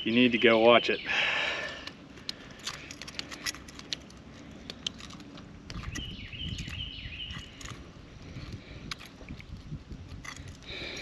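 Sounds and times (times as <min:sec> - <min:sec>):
low rumble of handling: 0:01.7 - 0:11.0.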